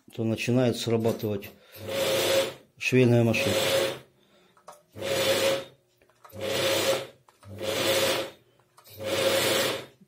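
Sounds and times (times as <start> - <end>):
sewing machine running: 1.8 - 2.7, 3.3 - 4.1, 4.9 - 10.0.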